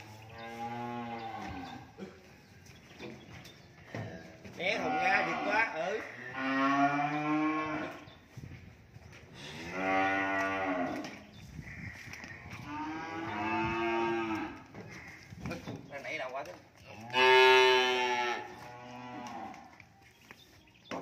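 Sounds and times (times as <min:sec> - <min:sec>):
cattle mooing: 0:17.1 - 0:19.6.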